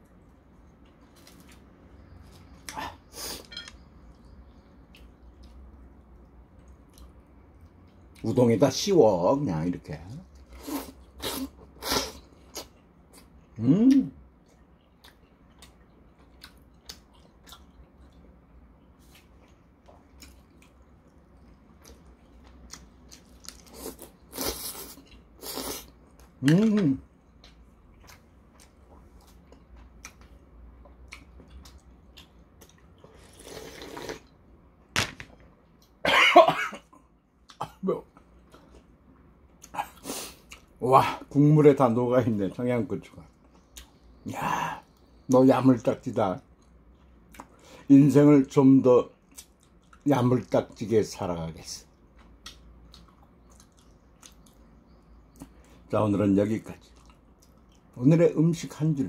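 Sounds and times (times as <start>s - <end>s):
person slurping noodles: 33.1s - 34.3s
man coughing: 36.0s - 36.9s
wet chewing: 52.2s - 54.7s.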